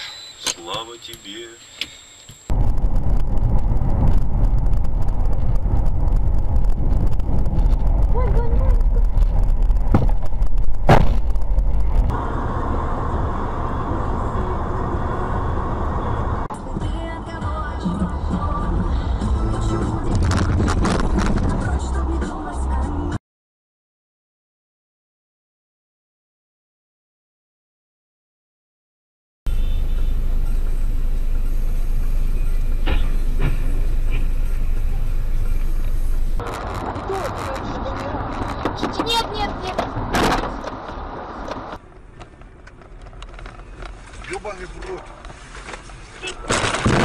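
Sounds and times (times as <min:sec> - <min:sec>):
vehicle driving rumble: 0:00.6 - 0:23.2, 0:29.5 - 0:47.0.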